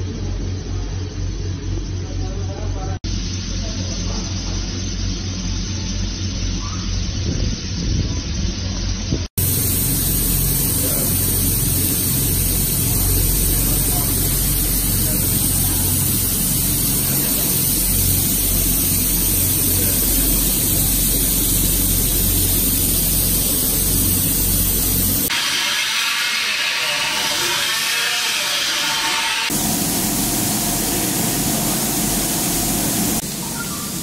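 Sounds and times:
low machine hum: 0:00.0 - 0:25.3, 0:29.5 - 0:34.0
fogger spraying mist hiss: 0:09.4 - 0:25.7, 0:29.5 - 0:34.0.

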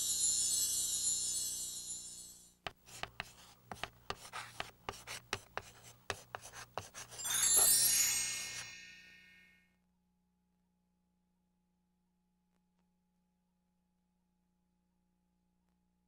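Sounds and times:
shimmering sparkle effect: 0:00.0 - 0:02.6, 0:07.1 - 0:09.7
chalk scratching on chalkboard: 0:02.7 - 0:07.7.

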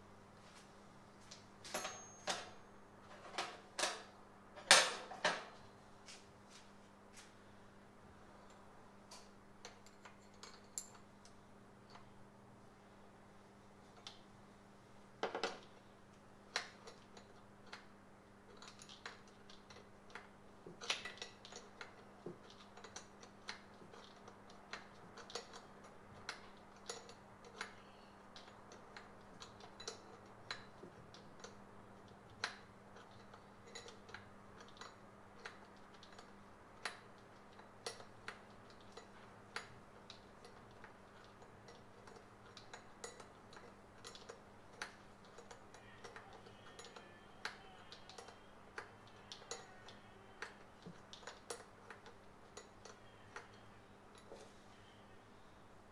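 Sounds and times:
steady low hum: 0:00.0 - 0:55.9
hand tools clicking on metal: 0:18.5 - 0:54.4.

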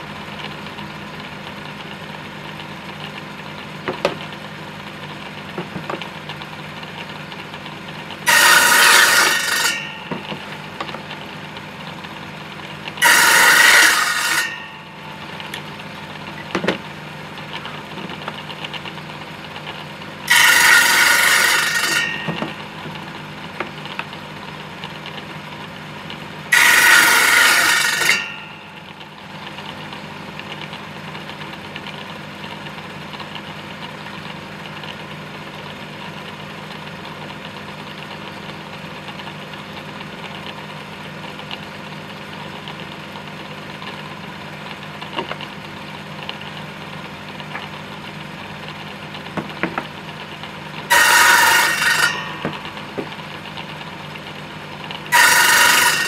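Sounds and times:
table saw cutting wood: 0:08.2 - 0:10.9, 0:13.0 - 0:14.9, 0:20.3 - 0:23.0, 0:26.5 - 0:28.7, 0:50.9 - 0:52.8, 0:55.1 - 0:56.0
wooden knocks: 0:49.4 - 0:49.9.

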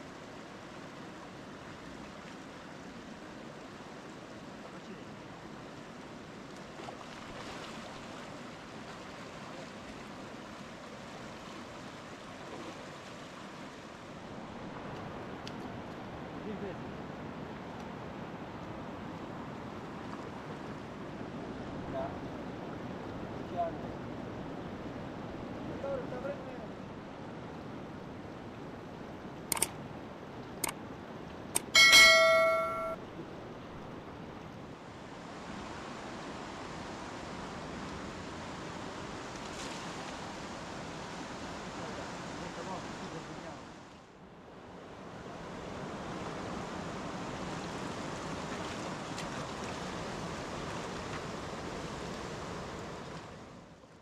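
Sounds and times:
river rushing: 0:00.0 - 0:33.0
metal object ringing bell-like: 0:31.7 - 0:33.0.

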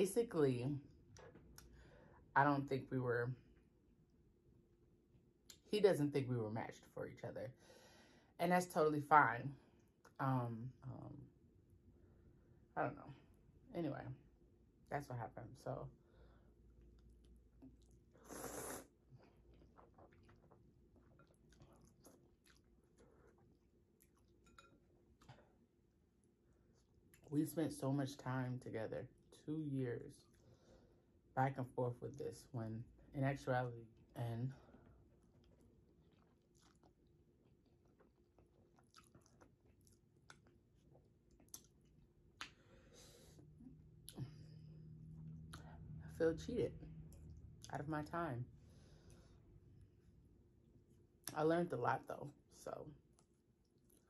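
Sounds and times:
soft wet chewing: 0:16.1 - 0:27.3, 0:30.2 - 0:31.2, 0:34.7 - 0:46.0, 0:46.9 - 0:47.7, 0:53.0 - 0:54.0
person slurping noodles: 0:18.2 - 0:19.0.

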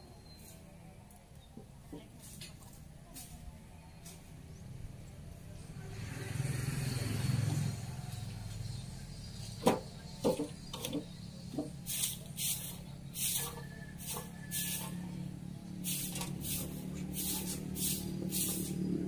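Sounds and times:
garden tool scraping soil: 0:10.3 - 0:15.0, 0:15.8 - 0:19.0.

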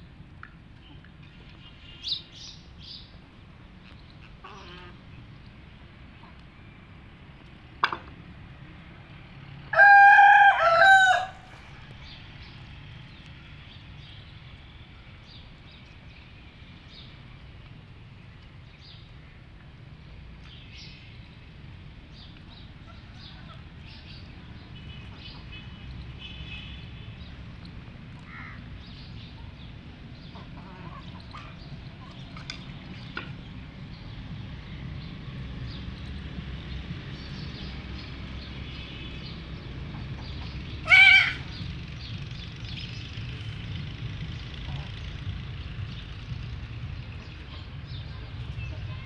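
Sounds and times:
rooster crowing: 0:09.7 - 0:11.6.

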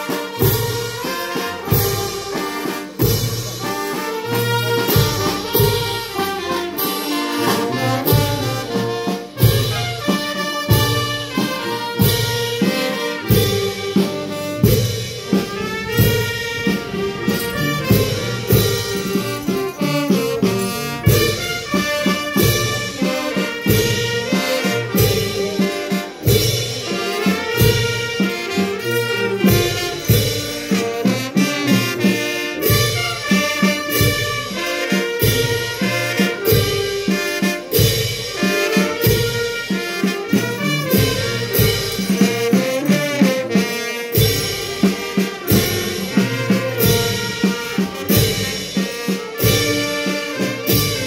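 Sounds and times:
brass melody: 0:00.0 - 0:51.0.

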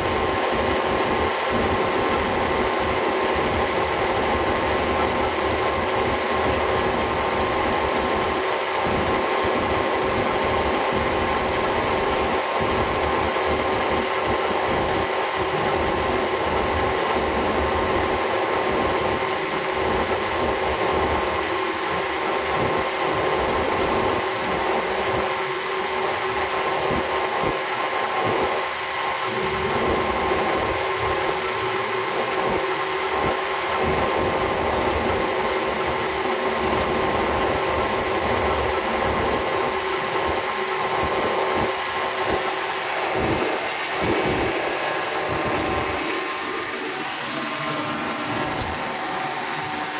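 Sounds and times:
diesel generator engine running: 0:00.0 - 0:49.9.

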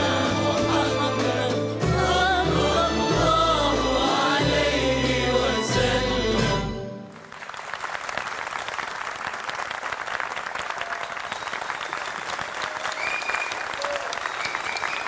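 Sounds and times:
choir and orchestra song: 0:00.0 - 0:07.2
audience applause: 0:07.0 - 0:15.0.

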